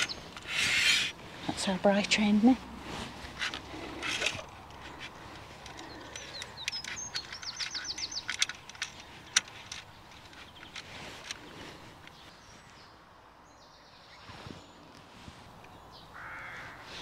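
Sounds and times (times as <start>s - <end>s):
songbird singing: 0.0s - 17.0s
sharp clicks: 3.4s - 12.2s.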